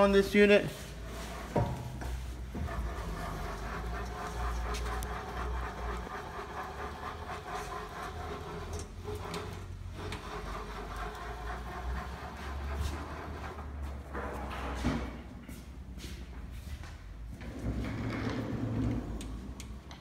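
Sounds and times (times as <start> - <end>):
grinder table rumbling and rattling: 1.0 - 15.2, 17.3 - 19.6.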